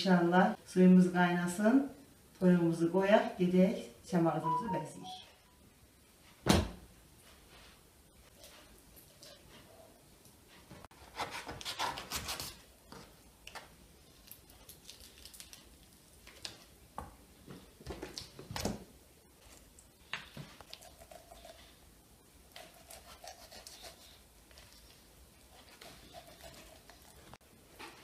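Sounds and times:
knife cutting and scraping chicken: 10.9s - 12.6s, 22.5s - 24.9s, 25.5s - 27.4s.

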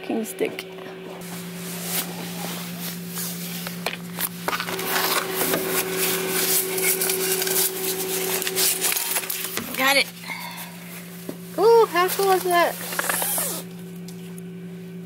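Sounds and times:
vending machine humming: 0.0s - 15.0s
vend motor whirring and clicking: 1.9s - 10.2s, 11.2s - 14.5s.

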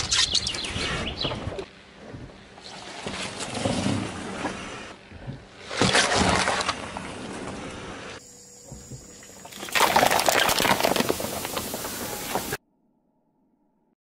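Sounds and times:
soda spraying and fizzing: 9.5s - 12.6s
tyre crushing bottles crackling: 9.5s - 12.6s.

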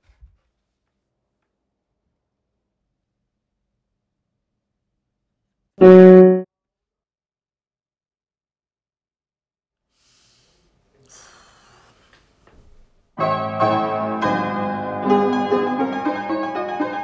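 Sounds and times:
upright piano chords: 5.8s - 6.4s, 13.2s - 17.0s.

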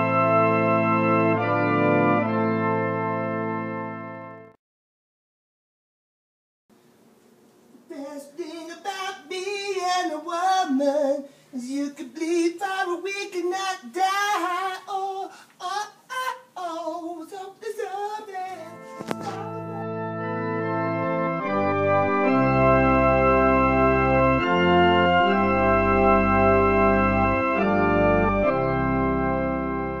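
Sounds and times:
organ chords: 0.0s - 4.6s, 7.9s - 30.0s
person singing wavering line: 18.4s - 20.0s.

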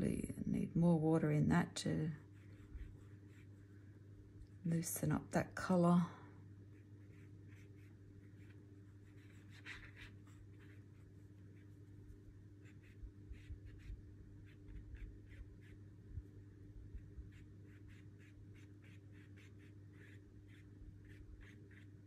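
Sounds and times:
steady low hum: 0.0s - 22.0s
brush bristles scratching paper: 2.2s - 3.7s, 7.0s - 15.8s, 17.0s - 22.0s.

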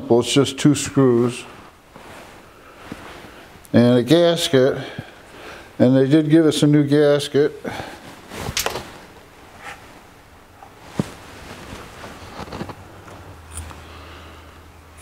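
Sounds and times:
small parts clicking and rustling: 12.3s - 13.8s.

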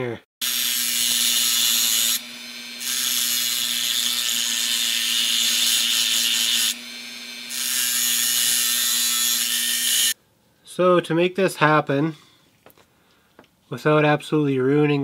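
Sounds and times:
rotary tool grinding metal: 0.4s - 10.2s
rotary tool motor hum: 0.4s - 10.2s.

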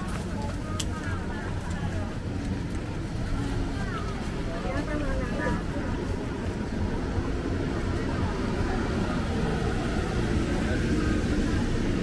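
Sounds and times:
faint crowd chatter: 0.0s - 12.0s.

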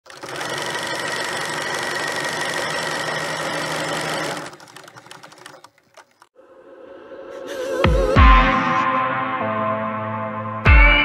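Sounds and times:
film projector clatter: 0.0s - 6.3s.

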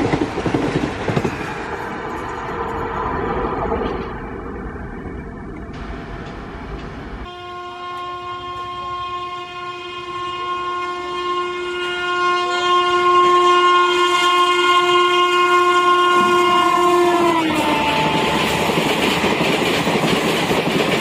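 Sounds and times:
passing train rumble: 0.0s - 21.0s
locomotive horn blast: 7.2s - 19.4s.

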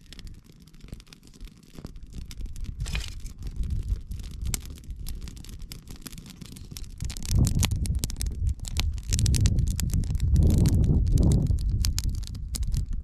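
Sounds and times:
campfire crackling and popping: 0.0s - 13.0s
wind buffeting microphone: 2.5s - 5.6s, 6.6s - 13.0s.

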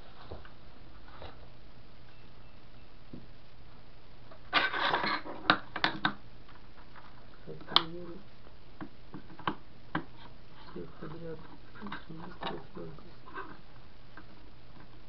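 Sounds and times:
faint low hum: 0.0s - 15.0s
sharp clicks and knocks: 5.0s - 7.1s, 8.8s - 10.3s.

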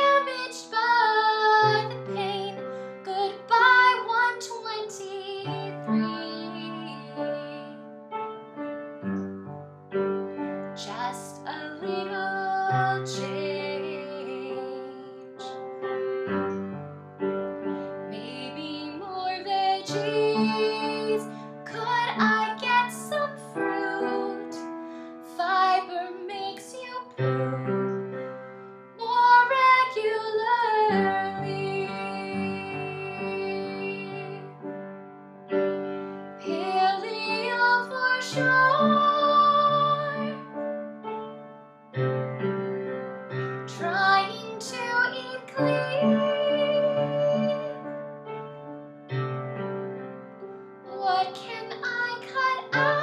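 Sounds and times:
woman singing with vibrato: 0.0s - 7.8s, 10.8s - 15.5s, 18.1s - 24.6s, 25.3s - 27.7s, 29.0s - 34.5s, 36.4s - 40.6s, 43.7s - 47.9s, 50.9s - 53.0s
piano accompaniment: 0.0s - 53.0s.

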